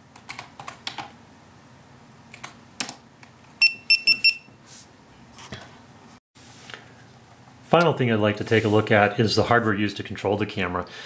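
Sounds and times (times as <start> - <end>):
short high beeps: 3.6 - 4.5.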